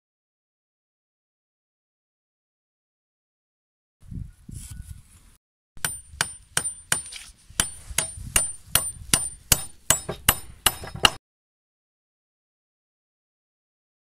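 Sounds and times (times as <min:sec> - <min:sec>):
hammering nail into wood: 0:05.8 - 0:11.2.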